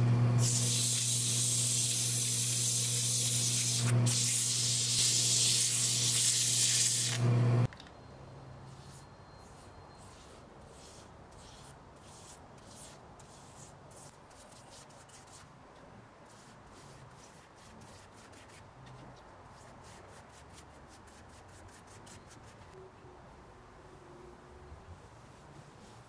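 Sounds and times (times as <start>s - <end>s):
paintbrush strokes on wood: 8.7s - 15.5s.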